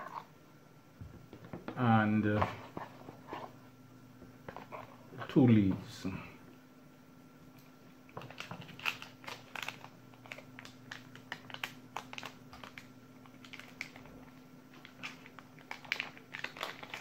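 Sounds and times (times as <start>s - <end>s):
plastic bag crinkling: 8.1s - 17.0s.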